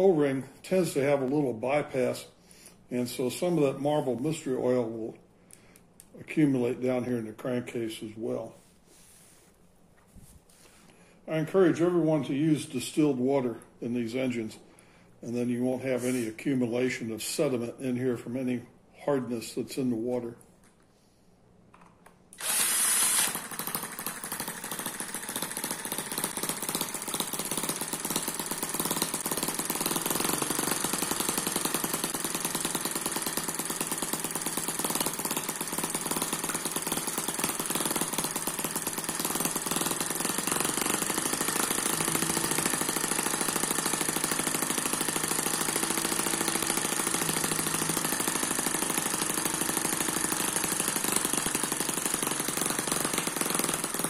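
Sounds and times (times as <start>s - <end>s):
cordless drill spinning engine: 22.4s - 54.0s
small model engine running: 22.4s - 54.0s.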